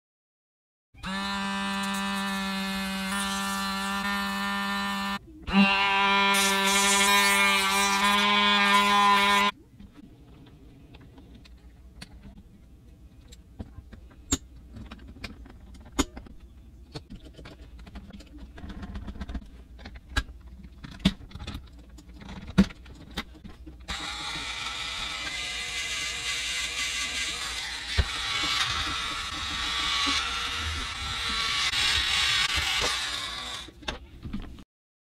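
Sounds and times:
toy motor whirring: 1.0 - 9.5, 23.9 - 33.8.

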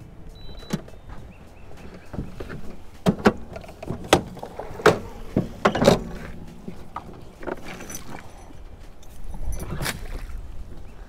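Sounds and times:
sharp knocks and clunks: 0.5 - 8.2.

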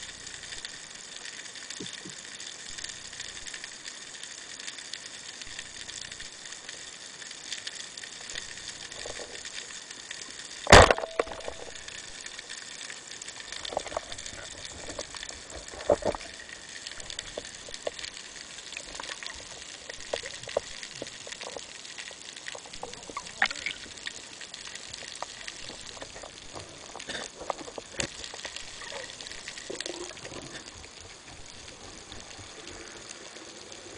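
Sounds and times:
speargun firing crack: 10.7 - 11.6
underwater hiss: 11.4 - 33.9.

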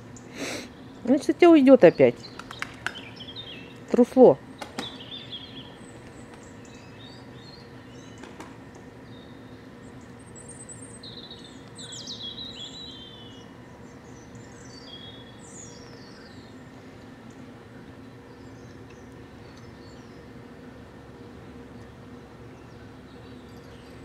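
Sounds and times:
low background hum: 0.0 - 24.0
songbirds chirping and trilling: 0.0 - 24.0.

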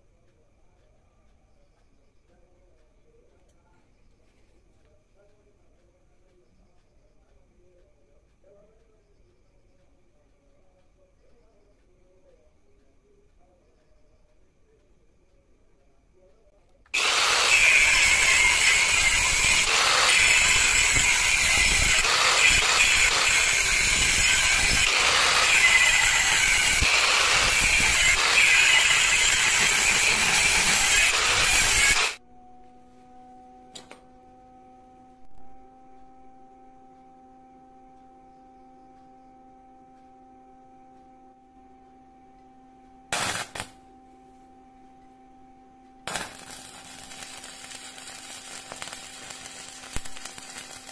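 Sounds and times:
faint steady hum: 0.0 - 30.8, 32.2 - 50.9
angle grinder cutting steel: 17.0 - 32.2, 43.1 - 43.7, 46.1 - 50.9
short loud bursts: 17.0 - 32.2, 43.1 - 43.8.

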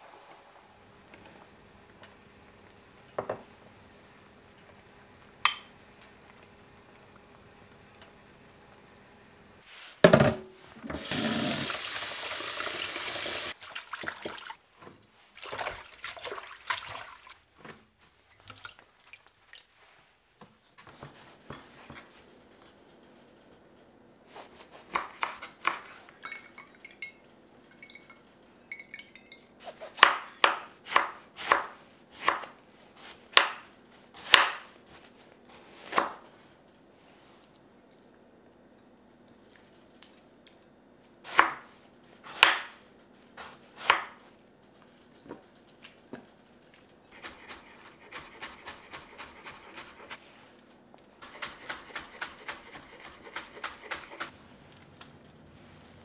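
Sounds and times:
running water: 10.8 - 14.6.

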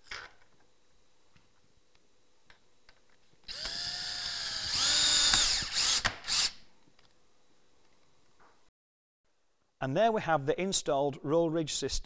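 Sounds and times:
cordless drill driving screw: 3.5 - 6.6.

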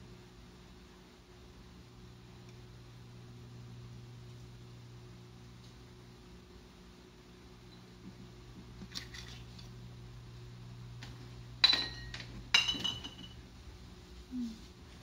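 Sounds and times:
steady low hum: 0.0 - 15.0
kitchenware clinking: 11.6 - 13.4.

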